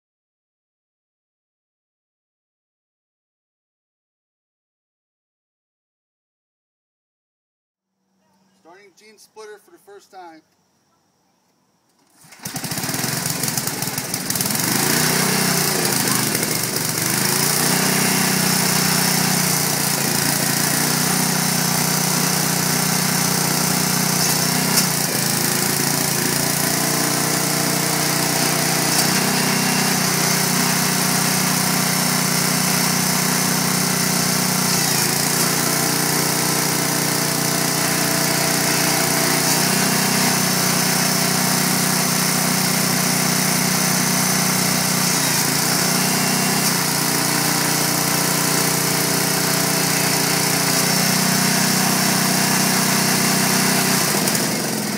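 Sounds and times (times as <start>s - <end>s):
small engine running: 12.1s - 54.9s.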